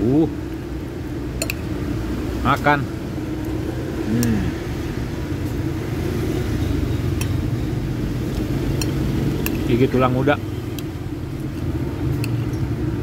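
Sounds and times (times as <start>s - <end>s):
vehicle engine rumbling: 0.0s - 13.0s
spoon clinking on plate: 1.4s - 1.7s.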